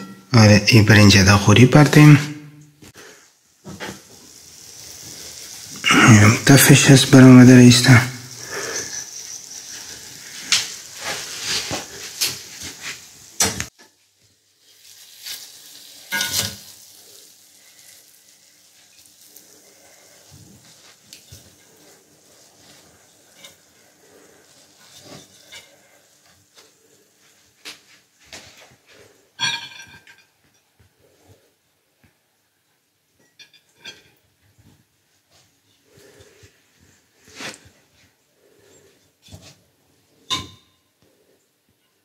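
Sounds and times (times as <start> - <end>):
sizzling: 0.0 - 42.0.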